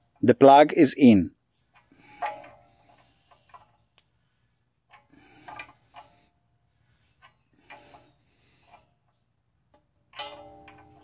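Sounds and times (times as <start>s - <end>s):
wrench clinking and scraping: 1.7s - 3.8s, 4.9s - 6.3s, 7.2s - 11.0s.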